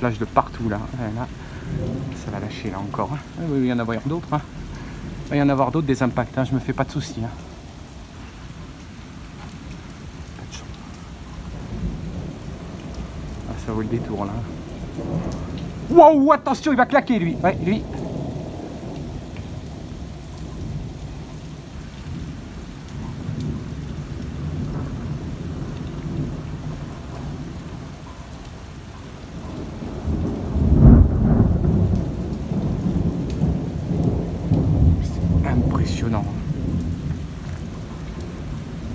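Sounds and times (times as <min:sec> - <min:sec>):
loud thunderclap: 0:00.0 - 0:03.4, 0:11.5 - 0:21.2, 0:23.0 - 0:27.9, 0:29.4 - 0:38.9
rain: 0:00.0 - 0:38.9
thunder rumbling: 0:00.0 - 0:38.9.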